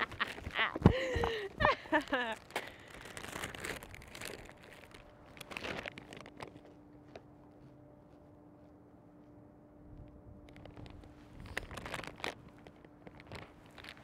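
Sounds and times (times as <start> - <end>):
faint steady hum: 0.0 - 14.0
chip bag crinkling: 2.0 - 6.7, 10.5 - 14.0
chips crunching: 2.4 - 6.7, 10.6 - 14.0.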